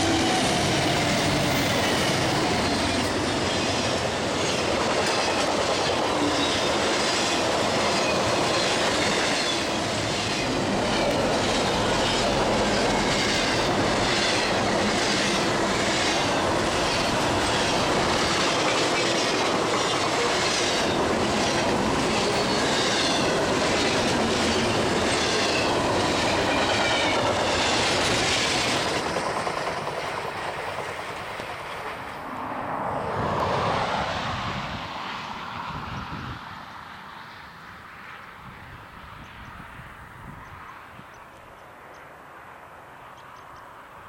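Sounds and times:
train wheels rumbling on rails: 0.0s - 36.4s
rhythmic clickety-clack: 0.3s - 32.0s.

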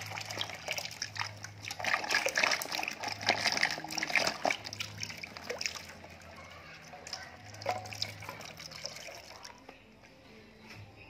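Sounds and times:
water pouring into a basin: 0.0s - 9.6s.

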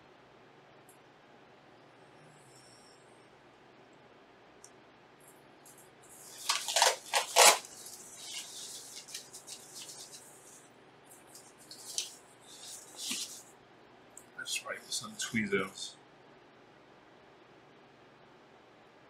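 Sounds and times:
thermal pads crackling and rustling: 5.2s - 13.6s.

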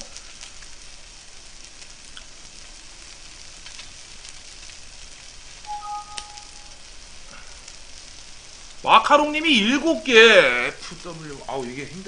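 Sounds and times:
meat sizzling on a grill pan: 0.0s - 12.0s
two-pitch electronic tone: 5.7s - 6.8s.

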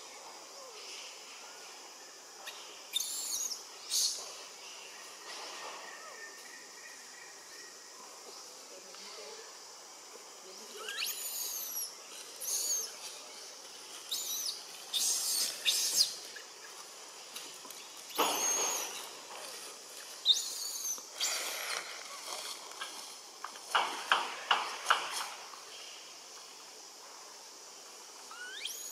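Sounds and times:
baby monkey squeaking: 2.9s - 4.2s, 10.8s - 12.9s, 14.1s - 16.2s, 18.1s - 19.1s, 20.2s - 21.4s, 28.3s - 28.9s
monkey harsh squeals: 10.8s - 12.9s, 14.1s - 16.2s, 20.3s - 21.4s, 28.3s - 28.9s.

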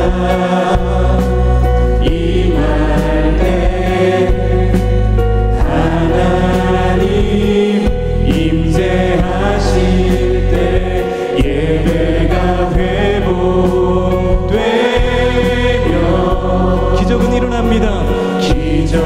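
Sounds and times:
women backing singers: 5.6s - 17.3s
man singing lead: 16.3s - 19.0s.

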